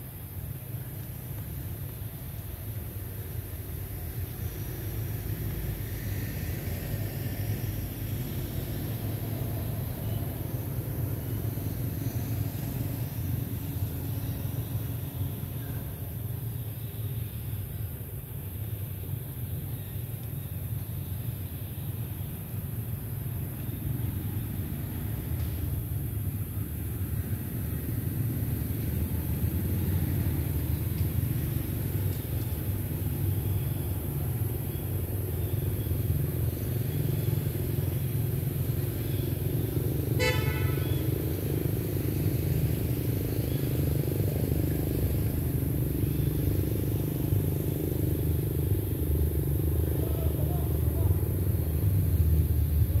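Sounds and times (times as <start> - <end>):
traffic rumble: 0.0 - 53.0
vehicle horn toot: 40.2 - 41.1.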